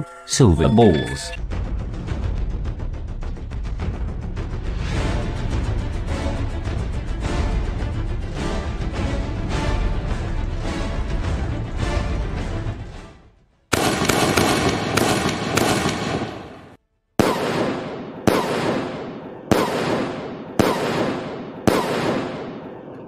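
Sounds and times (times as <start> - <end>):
background music: 0.0 - 16.2
firework sharp cracks: 13.7 - 23.0.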